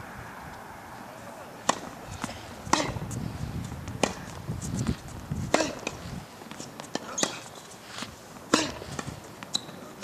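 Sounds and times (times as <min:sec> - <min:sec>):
tennis ball struck by racket: 0:01.6 - 0:03.1, 0:03.9 - 0:04.4, 0:05.5 - 0:07.6, 0:08.4 - 0:09.8
tennis ball bouncing: 0:01.6 - 0:03.2, 0:03.8 - 0:07.6, 0:08.4 - 0:10.0.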